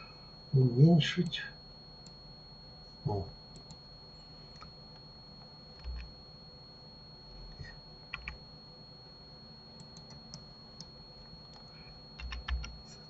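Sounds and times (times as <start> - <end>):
keyboard keystrokes: 5.8 - 6.1, 8.1 - 8.4, 11.5 - 12.8.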